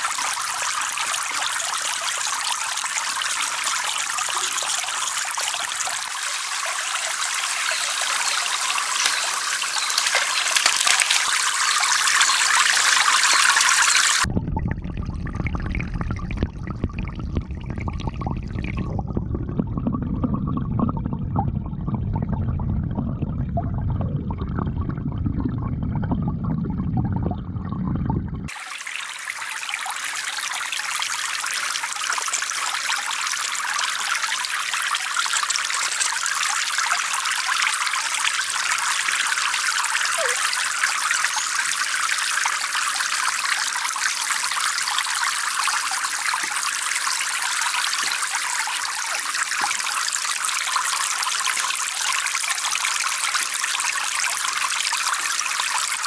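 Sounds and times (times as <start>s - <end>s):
water jets splashing into pond: 0.0s - 14.3s, 28.5s - 56.0s
dull underwater water noise: 0.0s - 56.0s.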